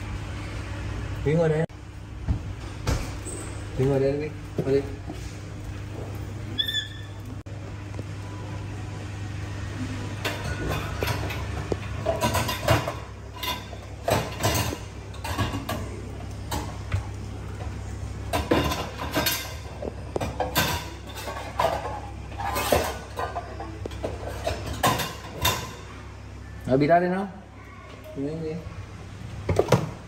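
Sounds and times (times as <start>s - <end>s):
containers and wire shelves clinking: 10.2s - 17.0s, 18.3s - 25.9s.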